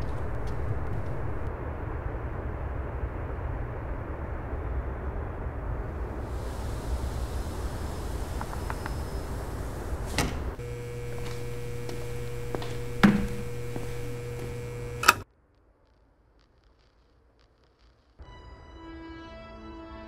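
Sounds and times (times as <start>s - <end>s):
electrical hum: 0.0s - 15.2s
low outdoor rumble: 0.0s - 17.6s
sharp clicks: 10.6s - 15.2s.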